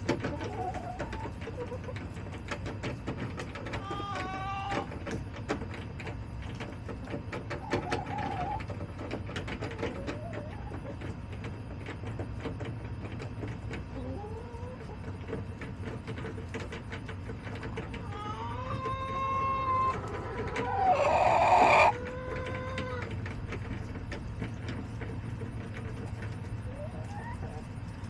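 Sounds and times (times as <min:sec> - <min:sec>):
hens calling: 0:03.6 - 0:05.0, 0:07.4 - 0:08.9, 0:17.5 - 0:23.2, 0:26.6 - 0:27.6.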